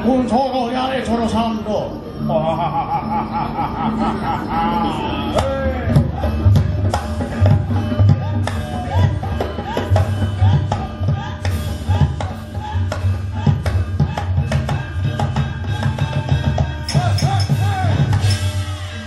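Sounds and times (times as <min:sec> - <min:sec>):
wavering voice crying out: 0:02.2 - 0:06.6.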